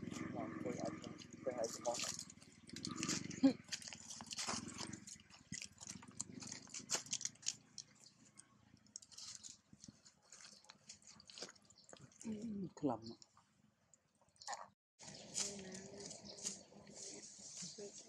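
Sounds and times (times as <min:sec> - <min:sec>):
low pulsing purr-like rumble: 0:00.0 - 0:10.0, 0:15.0 - 0:18.0
sharp crackles and clicks: 0:00.0 - 0:12.3
monkey chewing food: 0:00.0 - 0:12.6.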